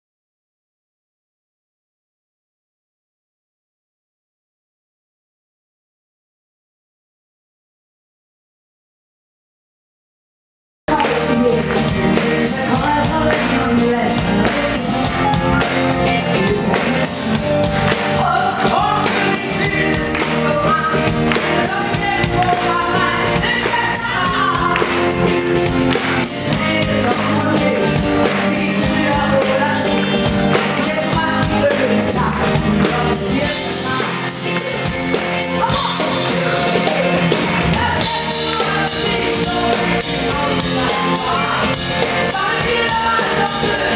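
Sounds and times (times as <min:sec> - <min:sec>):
audience clapping along: 0:10.9 - 0:13.8, 0:16.5 - 0:31.0
woman singing into a microphone: 0:10.9 - 0:17.3, 0:18.2 - 0:25.1, 0:26.3 - 0:43.9
live pop-rock band: 0:10.9 - 0:43.9.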